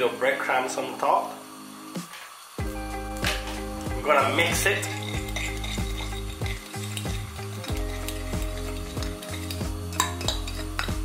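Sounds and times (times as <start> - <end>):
oil sizzling in a frying pan: 0.0 - 11.0
fork scraping a ceramic plate: 4.8 - 11.0.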